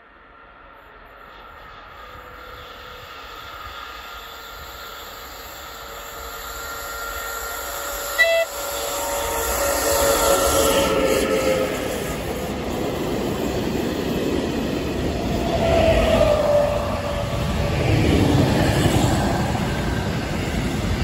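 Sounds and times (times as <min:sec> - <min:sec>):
train motors and wheels: 0:00.0 - 0:21.0
short locomotive horn toot: 0:08.1 - 0:11.7.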